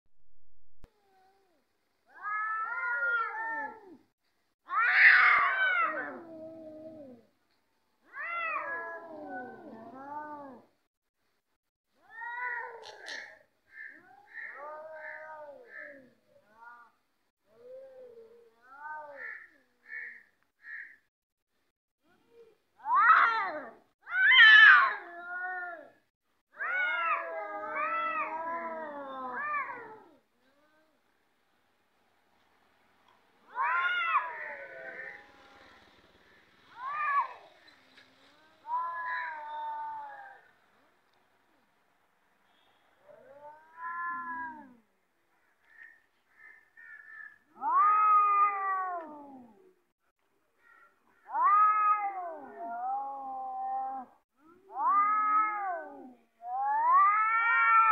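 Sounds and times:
cats yowling: 0.9 - 4.0, 4.7 - 7.3, 8.0 - 10.7, 12.0 - 20.8, 22.3 - 31.0, 33.4 - 40.5, 43.0 - 44.9, 45.7 - 49.8, 50.6 - 57.9.

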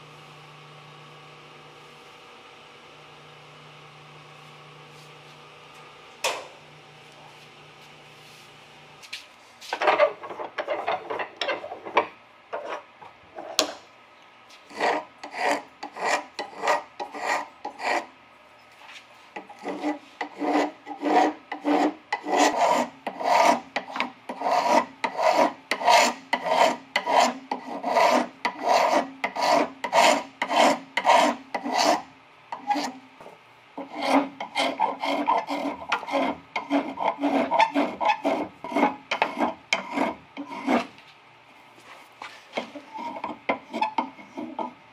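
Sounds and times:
spokeshave shaving wood: 14.6 - 18.1, 19.3 - 33.0, 33.8 - 41.0, 42.2 - 44.8.

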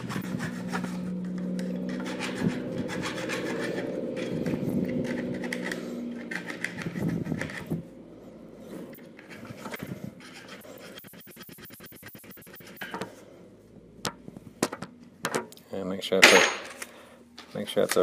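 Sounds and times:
hand file rasping on metal: 0.0 - 7.7, 9.2 - 12.8.

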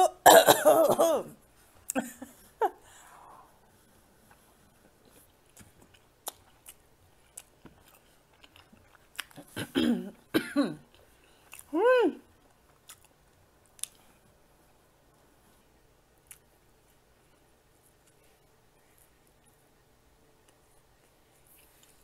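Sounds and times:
person chewing: 4.3 - 9.7, 10.9 - 11.7, 12.4 - 14.2, 16.2 - 17.0.

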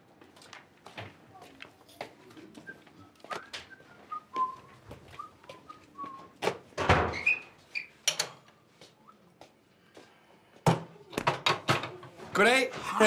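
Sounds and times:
person whistling a tune: 2.6 - 6.4.

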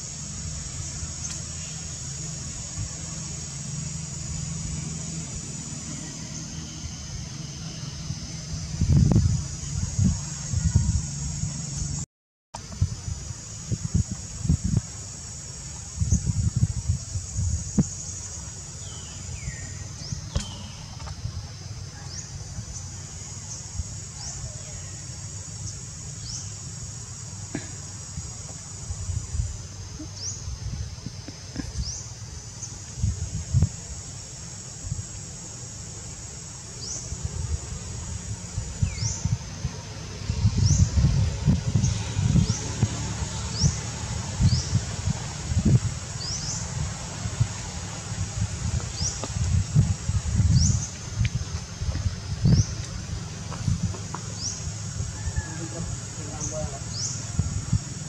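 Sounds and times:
insect chorus: 0.0 - 12.0, 12.6 - 58.0
falling whistled calls: 18.8 - 21.0.

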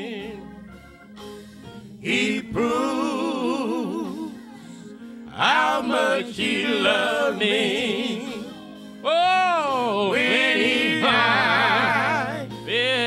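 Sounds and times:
person singing with vibrato: 2.0 - 12.7.

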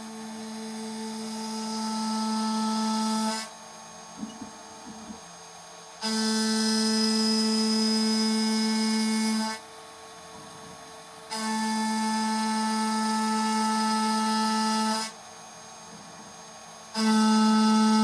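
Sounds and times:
milling machine cutting metal: 16.8 - 18.0.

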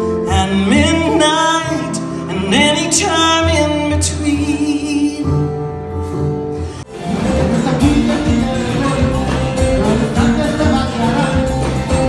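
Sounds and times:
acoustic guitar: 0.0 - 12.0
band with saxophone and percussion: 6.9 - 12.0.

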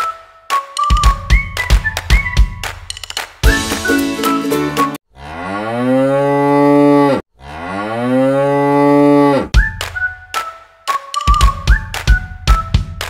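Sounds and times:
music: 0.0 - 5.0, 9.6 - 13.0
cow mooing: 5.2 - 9.5.

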